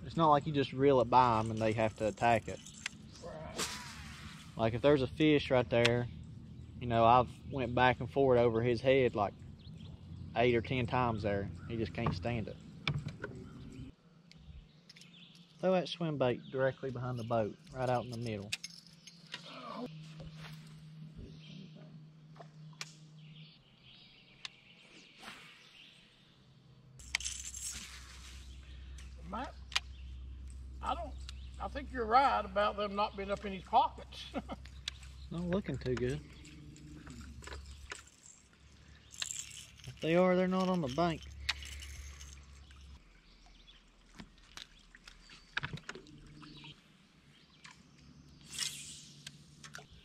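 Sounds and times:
low rumble with hiss: 0.0 - 14.7, 26.8 - 44.0
low steady hum: 0.0 - 24.7, 26.2 - 50.0.

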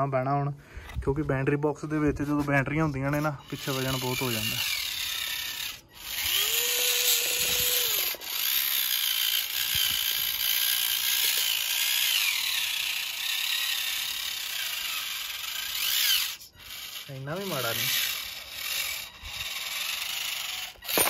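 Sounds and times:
toy electric motor whining: 2.7 - 21.0.

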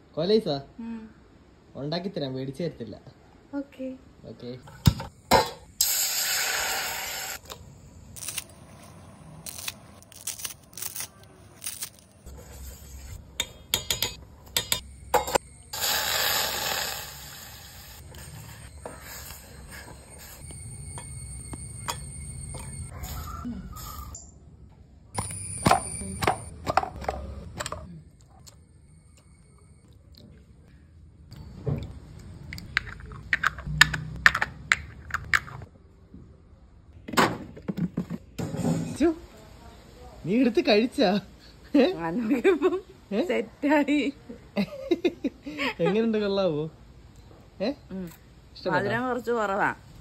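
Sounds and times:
milk pouring hiss: 5.8 - 7.4, 15.7 - 18.0
spoon clinking against pot: 13.4 - 15.4.

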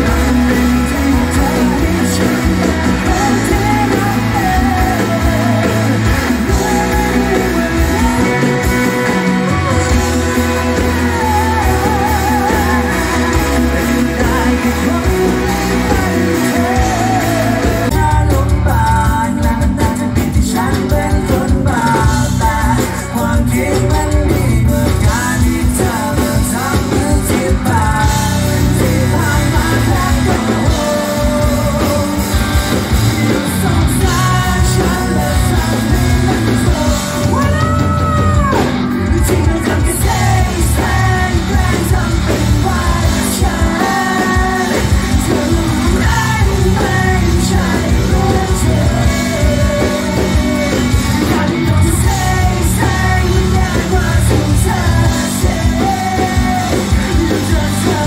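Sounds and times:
live rock band: 0.0 - 58.0
man singing: 0.0 - 58.0.

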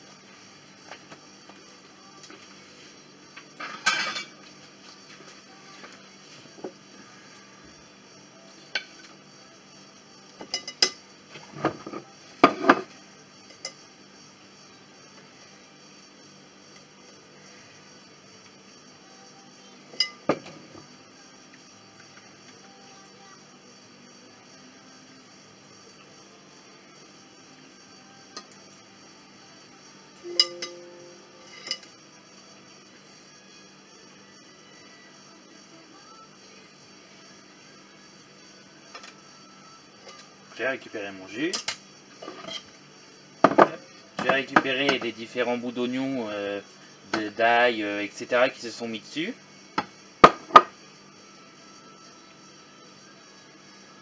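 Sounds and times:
kitchenware clinking: 3.6 - 4.4
kitchenware clinking and knocking: 43.4 - 45.0.

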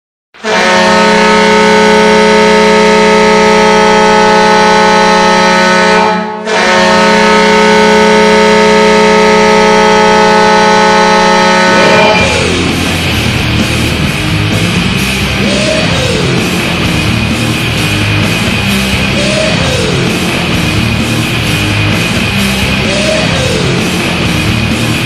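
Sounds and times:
hockey goal horn blaring: 0.4 - 13.2.

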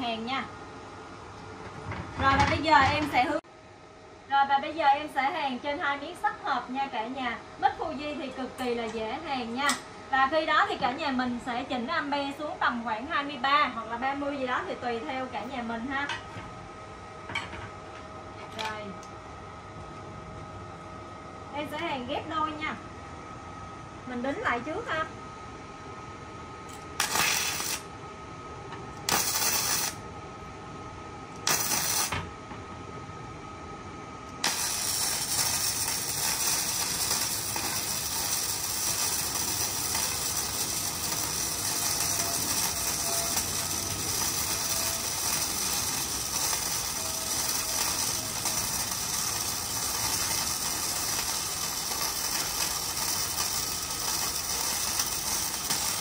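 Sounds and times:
welding arc crackling: 26.8 - 27.9, 29.0 - 30.0, 31.4 - 32.2, 34.4 - 56.0.

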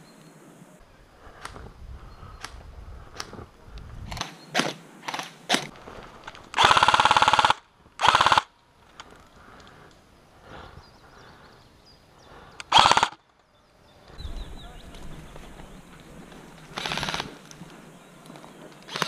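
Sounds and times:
airsoft rifle bursts: 4.1 - 5.7, 6.5 - 8.5, 12.6 - 13.3, 16.6 - 17.7.

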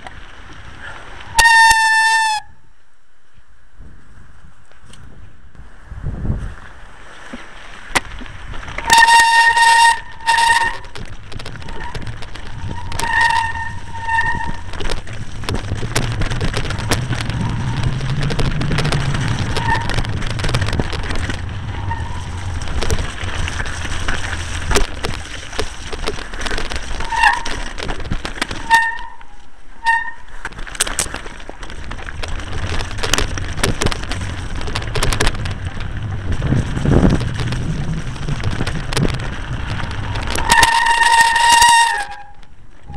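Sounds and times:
bike brakes squealing: 1.3 - 2.5, 8.8 - 10.9, 11.6 - 14.9, 16.7 - 20.2, 21.0 - 22.7, 26.9 - 27.7, 28.6 - 30.3, 40.3 - 42.9
wind rumbling on microphone: 3.6 - 42.9
bike clattering over stones: 7.1 - 42.9.

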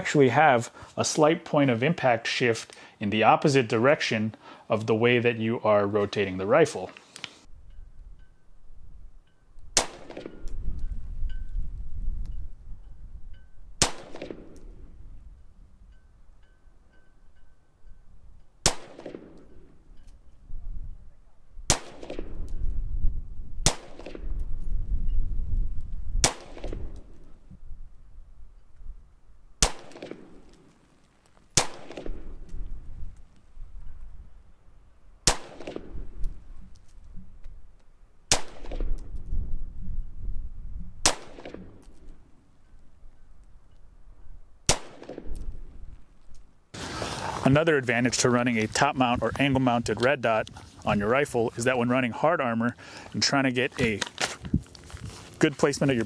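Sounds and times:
rifle shots echoing: 9.8 - 10.6, 13.8 - 14.8, 18.6 - 19.7, 21.7 - 22.5, 23.6 - 24.4, 26.2 - 27.1, 29.6 - 30.6, 31.5 - 32.5, 35.2 - 36.2, 38.3 - 39.0, 41.0 - 41.9, 44.6 - 45.5.

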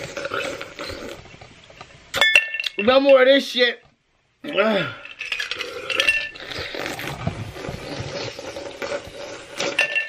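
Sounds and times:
swallowing: 0.0 - 1.3, 4.5 - 9.8.

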